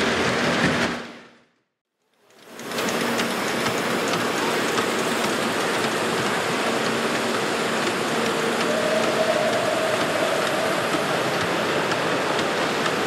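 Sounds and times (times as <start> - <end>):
steady dense hiss: 3.2 - 13.0.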